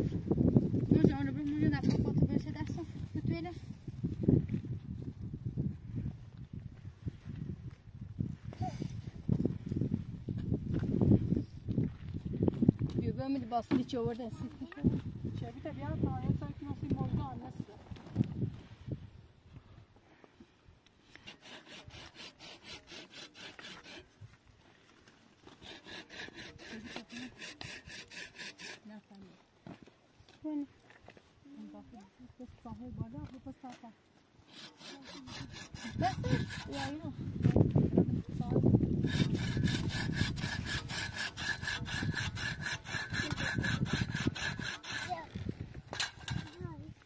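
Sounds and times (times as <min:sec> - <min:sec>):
rhythmic rasping strokes: 0:34.5 - 0:37.0, 0:39.0 - 0:45.2.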